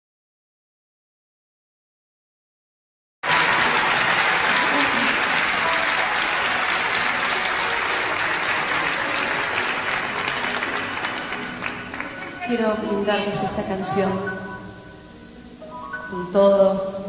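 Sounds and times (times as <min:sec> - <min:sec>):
audience applauding: 0:03.2 - 0:13.1.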